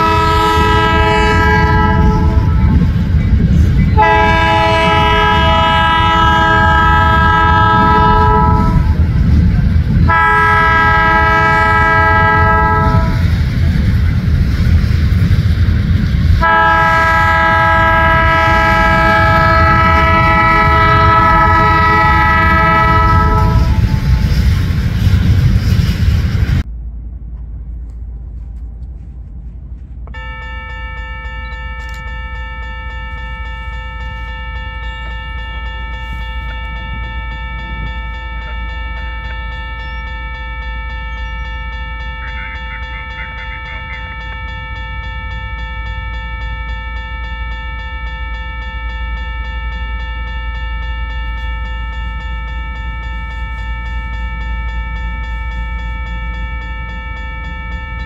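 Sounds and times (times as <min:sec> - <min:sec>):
locomotive air horn blasts: 0:00.0 - 0:03.0, 0:04.0 - 0:09.0, 0:10.0 - 0:13.3, 0:16.4 - 0:24.2
crossing signal bell ringing: 0:00.0 - 0:25.8, 0:30.1 - 0:58.0
low rumble of passing train: 0:00.0 - 0:58.0.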